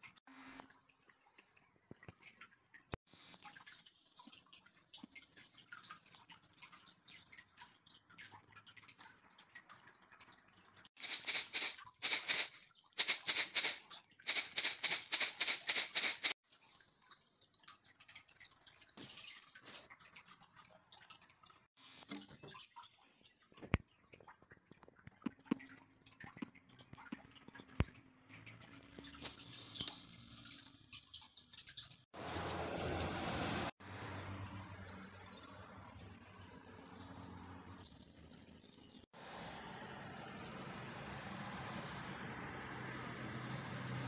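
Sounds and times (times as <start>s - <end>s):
plastic parts rattling: 11.0s - 16.4s.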